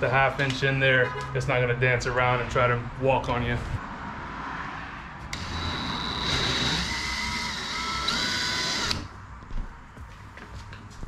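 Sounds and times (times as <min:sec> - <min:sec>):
cordless drill whining: 0:05.3 - 0:09.1.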